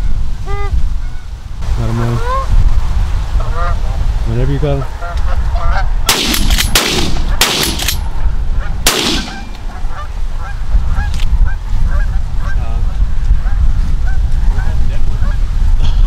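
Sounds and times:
wind rumble on microphone: 0.0 - 16.0
geese honking: 4.8 - 5.9, 8.6 - 12.6.

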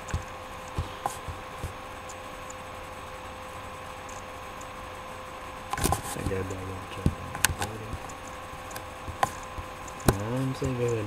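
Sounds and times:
faint steady hum: 0.0 - 11.0
room tone hiss: 0.0 - 11.0
small clicks: 5.7 - 11.0.

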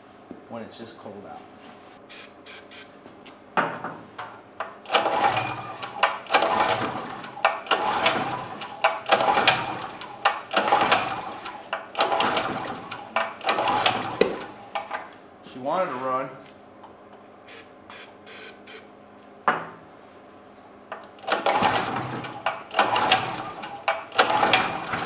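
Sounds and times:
engine cranking whir: 4.8 - 14.9, 21.2 - 25.0.

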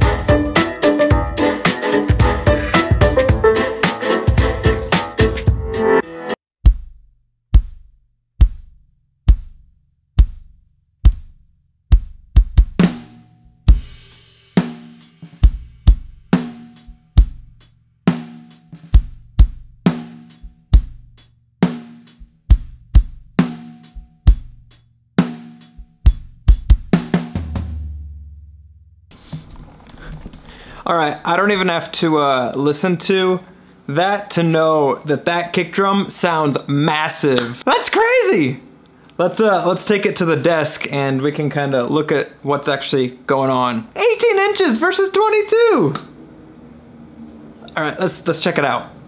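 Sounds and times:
kick drum beats: 2.1 - 3.6, 6.6 - 13.1, 13.7 - 14.0, 15.4 - 16.2, 16.8 - 17.6, 18.9 - 24.8, 25.8 - 27.6.

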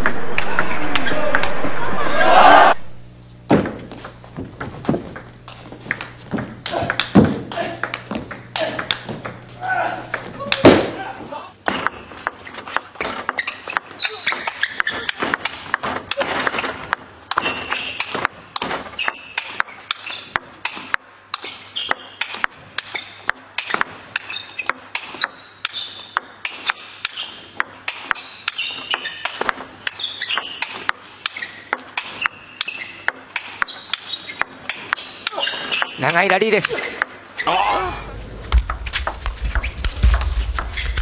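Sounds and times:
table tennis ball clicks: 3.4 - 11.0.

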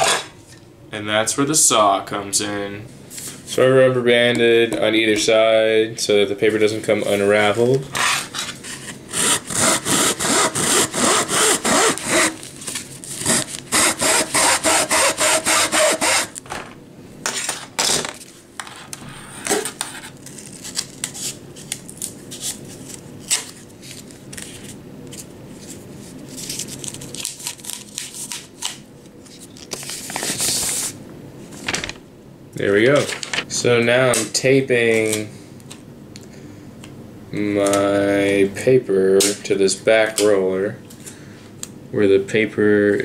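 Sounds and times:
hacksaw cutting paper roll: 0.0 - 0.3, 7.9 - 12.5, 13.1 - 16.4
paper roll knocks and rustling: 31.6 - 32.0.

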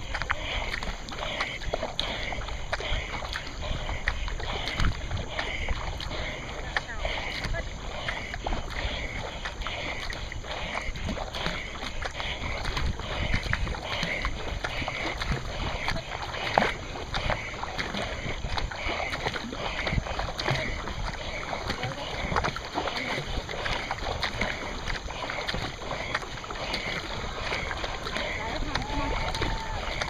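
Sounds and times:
kayak paddle splashing: 0.0 - 30.0
water washing along hull: 0.0 - 30.0.

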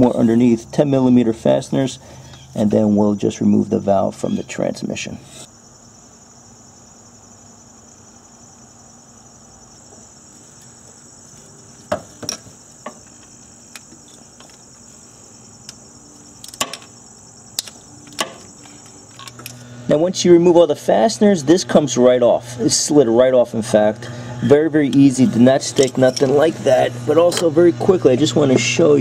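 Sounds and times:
steady high-pitched buzz: 0.0 - 29.0
metal socket clinking on bolts: 16.4 - 17.0, 19.1 - 19.6, 24.9 - 26.5.

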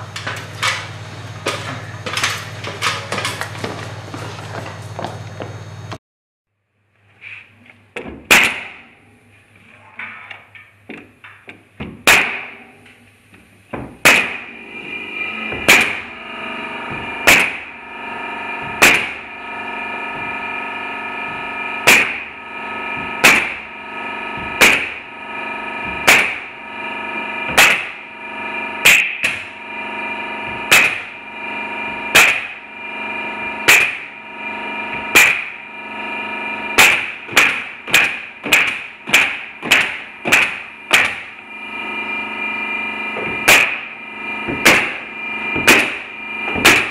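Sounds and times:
nail gun firing into plywood: 8.3 - 8.8, 12.0 - 12.6, 14.0 - 14.4, 15.6 - 16.0, 17.3 - 17.7, 18.8 - 19.2, 21.8 - 22.3, 23.2 - 23.6, 24.5 - 25.0, 26.0 - 26.5, 27.5 - 28.0, 28.8 - 29.5, 30.7 - 31.1, 32.1 - 32.6, 33.7 - 34.1, 35.1 - 35.6, 36.8 - 41.3, 43.4 - 43.9, 44.5 - 45.0, 45.6 - 46.9.

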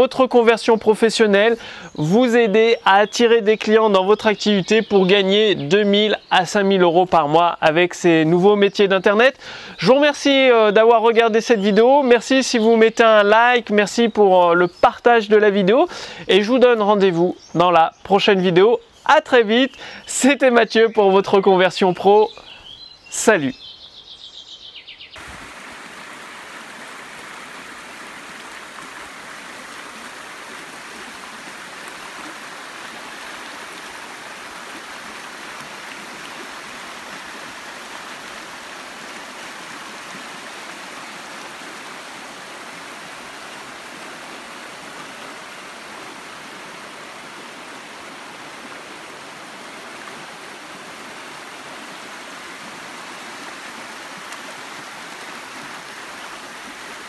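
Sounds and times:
water rushing over rocks: 25.2 - 57.0.

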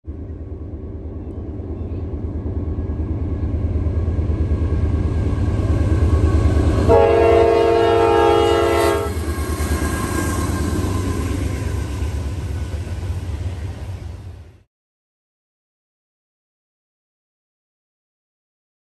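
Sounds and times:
locomotive low rumble: 0.0 - 14.6
train air horn blast: 6.8 - 9.2.

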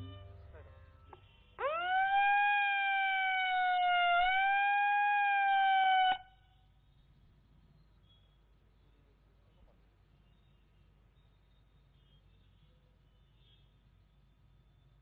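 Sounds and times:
siren steady tone: 0.0 - 7.2.

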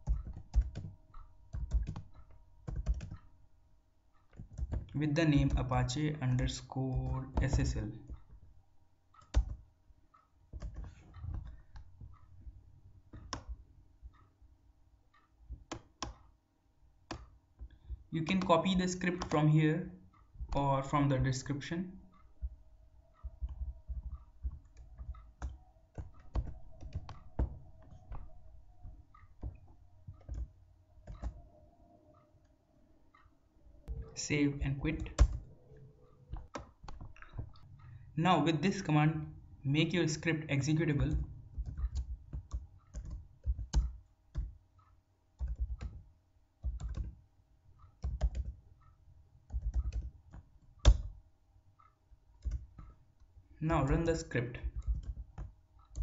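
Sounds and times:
computer keyboard typing: 0.0 - 3.3, 4.3 - 8.4, 9.1 - 9.7, 10.5 - 12.3, 13.1 - 14.2, 17.1 - 19.5, 20.4 - 32.2, 33.8 - 38.9, 39.8 - 44.6, 45.4 - 47.2, 47.8 - 51.2, 51.8 - 56.0.

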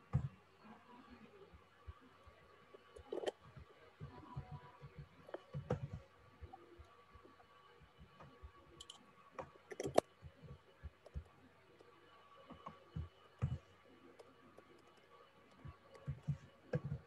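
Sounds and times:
keyboard keys clicking: 8.2 - 9.0, 9.7 - 10.1.

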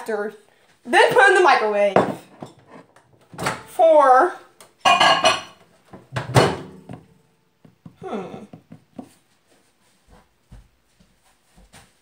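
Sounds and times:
soft footsteps: 6.9 - 12.0
girl making wordless vocal sounds: 8.0 - 8.6.

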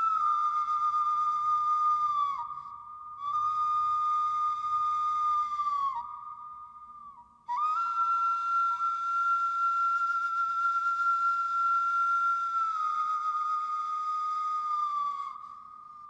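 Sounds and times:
whistle-like synthesized tone: 0.0 - 1.7.

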